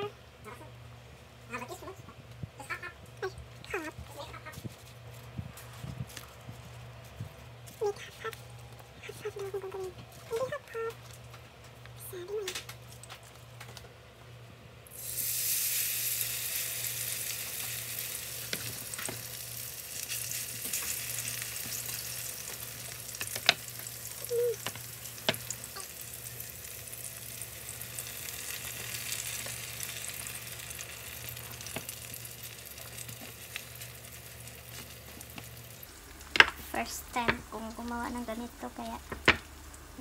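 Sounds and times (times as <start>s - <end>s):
onions sizzling in a pan: 14.9s - 40.0s.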